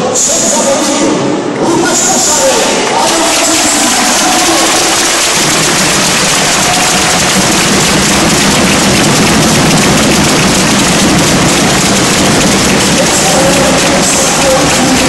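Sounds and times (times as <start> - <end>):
crowd voices: 0.0 - 15.0
crowd applauding: 1.9 - 15.0.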